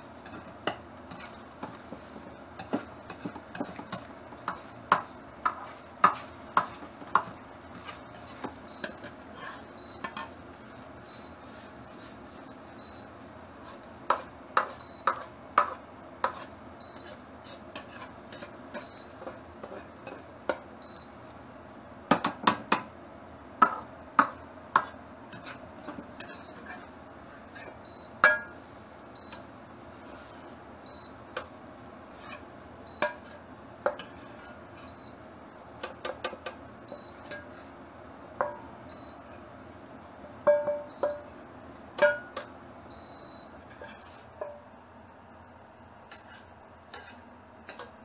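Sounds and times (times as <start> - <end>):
ladle clanking against wok: 27.5 - 28.6, 32.2 - 35.0, 35.8 - 37.7, 38.4 - 39.4, 40.2 - 41.4, 42.0 - 42.6, 43.2 - 44.7.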